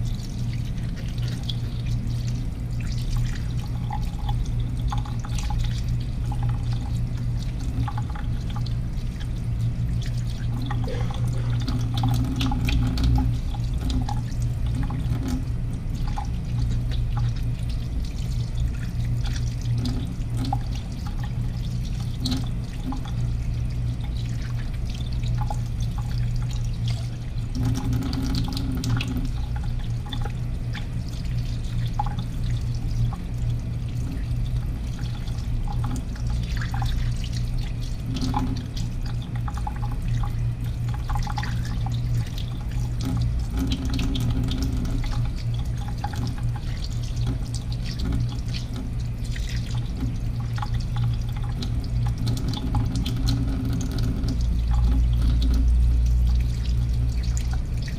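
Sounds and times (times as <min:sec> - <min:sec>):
tap water running into sink: 0:00.0 - 0:57.9
low hum: 0:10.0 - 0:14.4.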